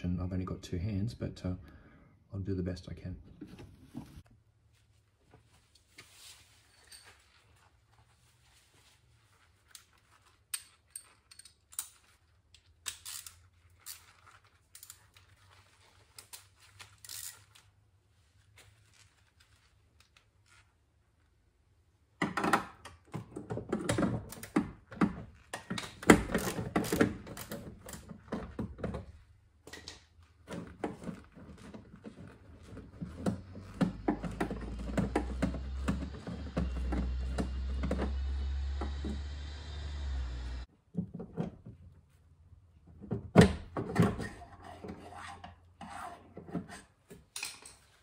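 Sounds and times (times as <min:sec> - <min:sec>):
metal parts clattering and rattling: 0:10.2 - 0:15.2
tools clicking and knocking: 0:10.5 - 0:14.1, 0:22.2 - 0:29.0, 0:47.1 - 0:47.9.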